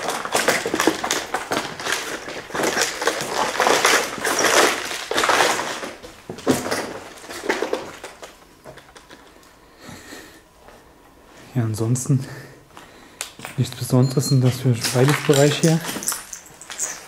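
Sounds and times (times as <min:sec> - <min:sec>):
footsteps crunching over rubble: 0:00.0 - 0:09.0, 0:12.7 - 0:17.0.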